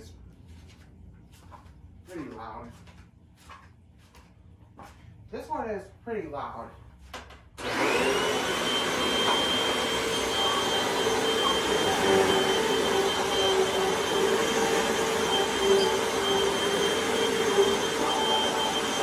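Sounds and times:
upright vacuum cleaner running: 7.6 - 19.0.

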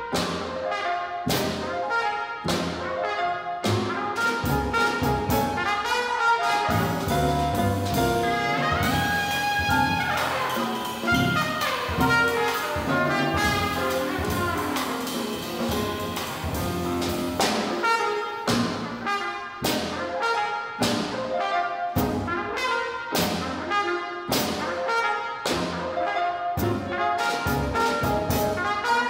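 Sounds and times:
drums: 0.0 - 29.0
piano: 0.0 - 29.0
trumpet: 0.0 - 29.0
upright bass: 3.7 - 5.6, 6.7 - 17.8.

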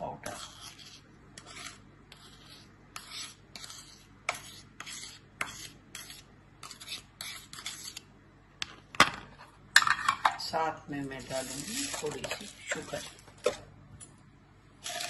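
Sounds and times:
metal spoon scraping cup: 0.1 - 8.0, 11.2 - 13.2.

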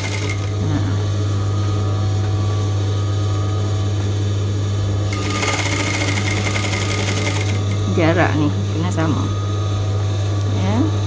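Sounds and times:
electric sewing machine running: 0.0 - 1.3, 5.1 - 8.5.

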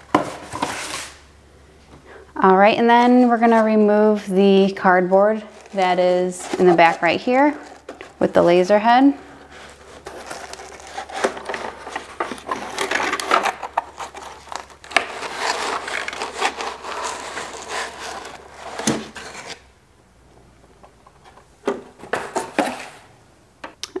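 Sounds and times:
cardboard scraping inside machine: 9.4 - 19.7.

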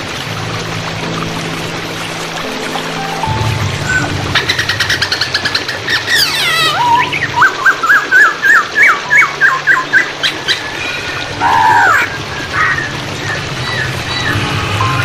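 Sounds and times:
running water: 0.0 - 15.0
songbird singing: 2.8 - 10.7.

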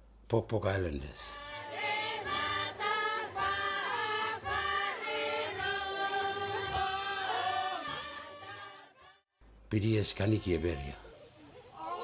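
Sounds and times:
voices chanting in parts: 1.3 - 9.2.

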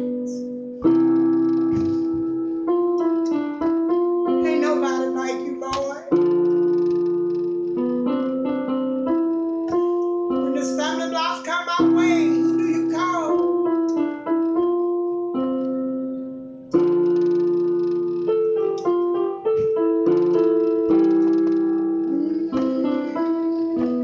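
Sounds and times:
electronic keyboard gospel chords: 0.0 - 24.0.

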